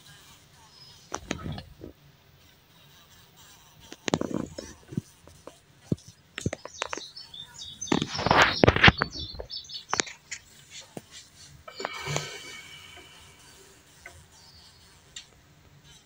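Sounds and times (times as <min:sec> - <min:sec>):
faint bird chirps: 0:06.5 - 0:10.2.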